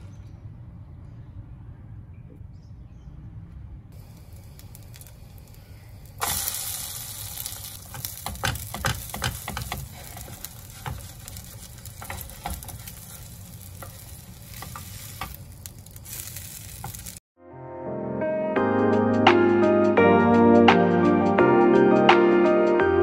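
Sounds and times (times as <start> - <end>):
bread sizzling in hot oil: 4.0 - 17.2
wooden spatula scraping pan: 7.8 - 17.1.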